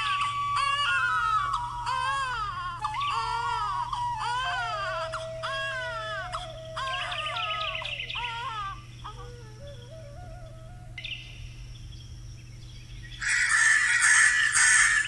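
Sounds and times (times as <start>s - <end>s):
short wailing cries: 0.0s - 11.1s
soft background music: 0.0s - 11.3s.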